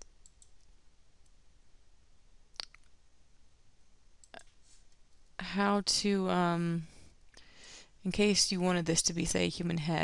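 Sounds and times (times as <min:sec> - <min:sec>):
computer mouse clicks: 0:00.0 - 0:01.4.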